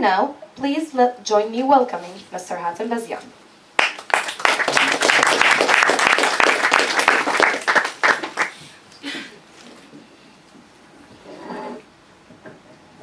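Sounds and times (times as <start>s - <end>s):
audience applauding: 3.8s - 8.6s.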